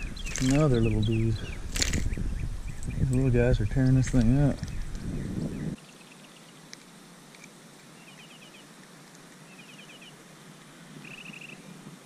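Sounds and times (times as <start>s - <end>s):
bird trilling: 0.0s - 3.1s, 11.0s - 11.6s
faint outdoor hiss: 0.0s - 12.0s.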